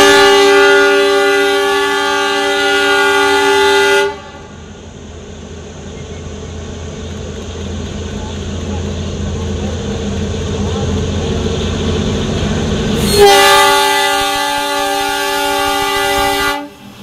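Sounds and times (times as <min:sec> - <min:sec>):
diesel locomotive horn: 0:00.0 - 0:04.7, 0:13.0 - 0:17.0.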